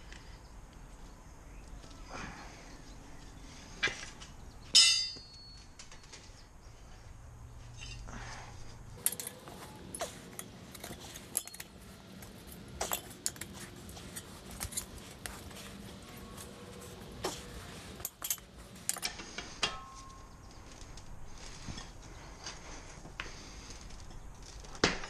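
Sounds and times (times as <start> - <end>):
metal tools clinking: 4.7 - 6.5, 7.7 - 8.2, 9.0 - 22.0
loud ringing metal clang: 4.8 - 5.7.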